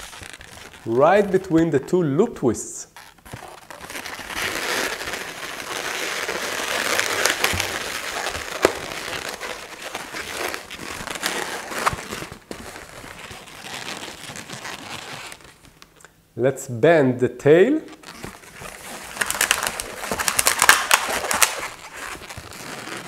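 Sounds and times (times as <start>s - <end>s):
rubber balloons rubbing and crinkling: 0.0s - 16.0s, 17.8s - 23.0s
sharp balloon clicks: 3.0s - 9.4s, 19.1s - 21.8s.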